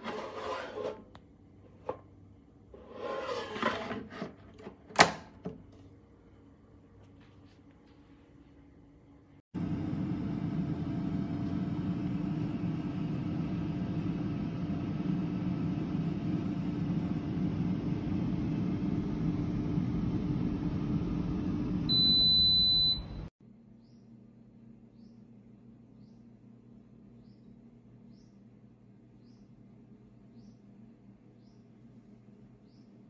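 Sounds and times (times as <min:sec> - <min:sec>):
air fryer fan whirring: 0:09.6 - 0:23.3
loud high beep: 0:21.9 - 0:23.3.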